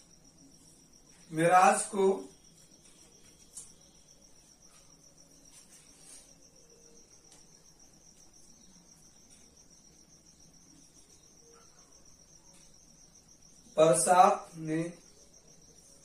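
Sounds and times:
faint high-pitched trill: 0:00.0 - 0:16.0
marker strokes on whiteboard: 0:02.3 - 0:07.5.

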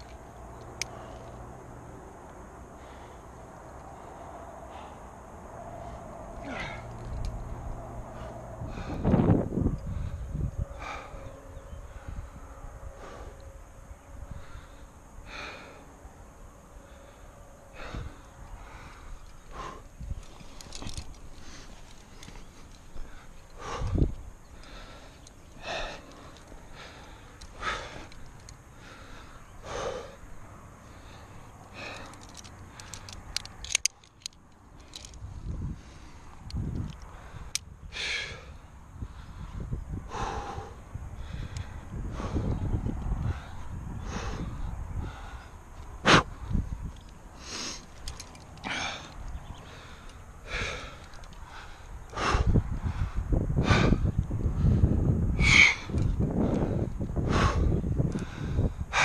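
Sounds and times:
low rumble on microphone: 0:00.0 - 0:32.0, 0:35.2 - 0:47.1, 0:48.7 - 0:59.0
person breathing hard: 0:00.6 - 0:33.3, 0:34.7 - 0:59.0
sharp clicks: 0:31.6 - 0:35.2.

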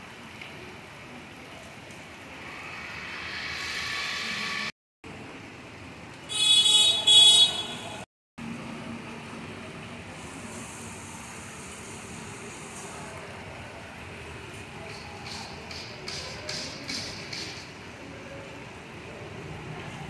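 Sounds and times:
vehicle horn honks: 0:06.3 - 0:08.0
heavy rain hissing: 0:09.0 - 0:14.8.

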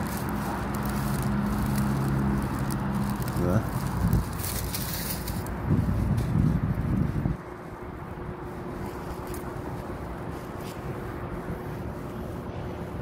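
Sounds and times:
street traffic: 0:00.0 - 0:13.0
wind on microphone: 0:03.5 - 0:10.2.

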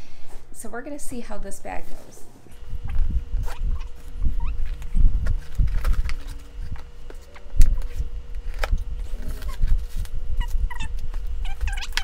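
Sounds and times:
high squeaky chirps: 0:10.4 - 0:12.0.

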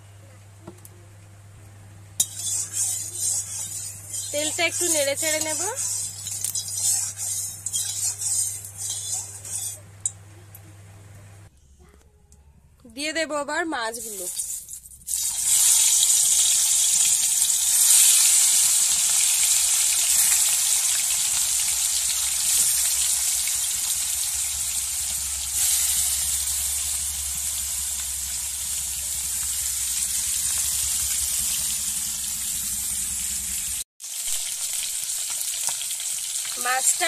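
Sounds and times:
fish sizzling in oil: 0:02.2 - 0:09.8, 0:14.0 - 0:37.0.

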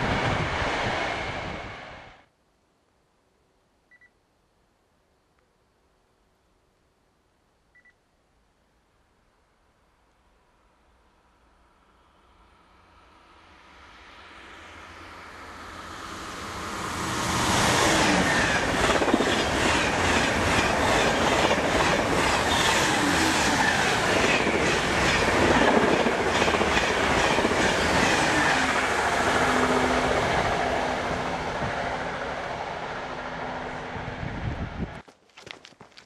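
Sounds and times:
high-speed train rushing past: 0:00.0 - 0:02.3, 0:11.3 - 0:35.0
train low hum: 0:00.0 - 0:02.3, 0:10.3 - 0:35.0.

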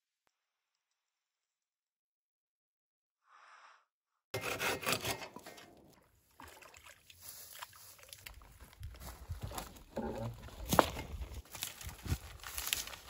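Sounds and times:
rustling tall grass and plants: 0:07.1 - 0:13.0.

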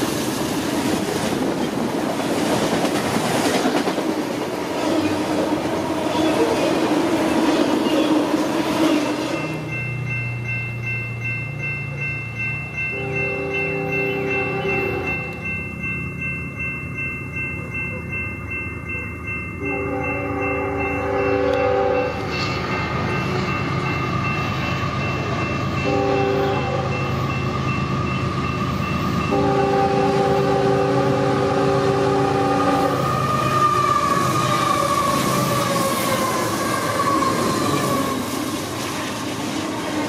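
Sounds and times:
diesel locomotives and wheels passing: 0:00.0 - 0:40.0
crossing bell ringing: 0:01.4 - 0:38.8
locomotive air horn blasts: 0:12.9 - 0:15.4, 0:19.6 - 0:22.3, 0:25.8 - 0:27.0, 0:29.3 - 0:33.2.

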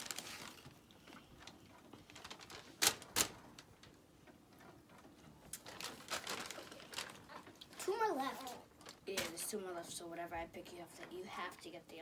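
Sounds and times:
paper bag crinkling: 0:00.0 - 0:03.9, 0:05.5 - 0:09.5.

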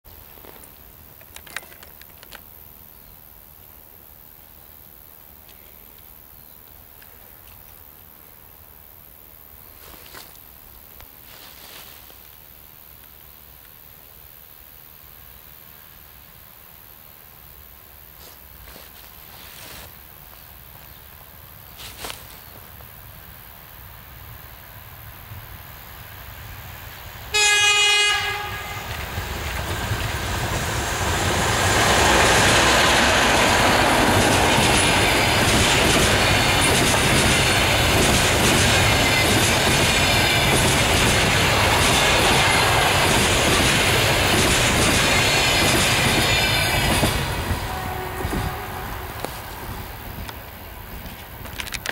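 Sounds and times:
train wheels on rails: 0:24.6 - 0:51.9
locomotive horn blast: 0:27.3 - 0:29.0, 0:47.3 - 0:49.8.

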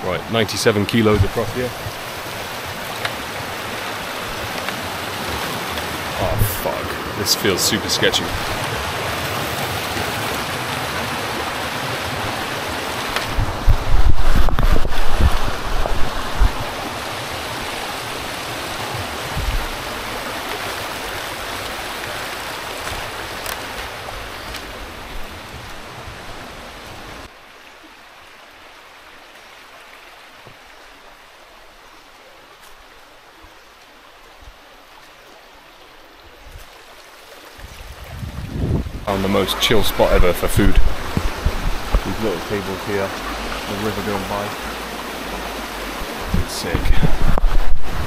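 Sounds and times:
river water rushing: 0:00.0 - 0:48.0.

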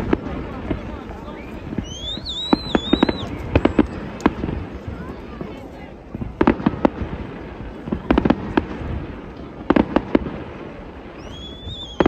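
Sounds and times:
high firework whistle: 0:01.2 - 0:04.0, 0:11.1 - 0:12.0.

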